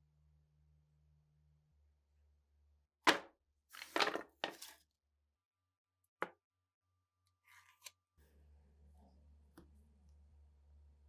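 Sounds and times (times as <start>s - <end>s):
wooden boards knocking: 3.1s - 3.3s.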